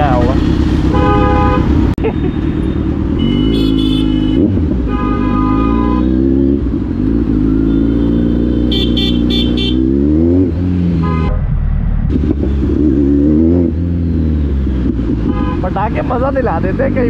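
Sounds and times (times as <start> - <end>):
car horns honking: 0.0 - 11.4, 14.4 - 16.2
motorcycle engine revving: 0.0 - 17.0.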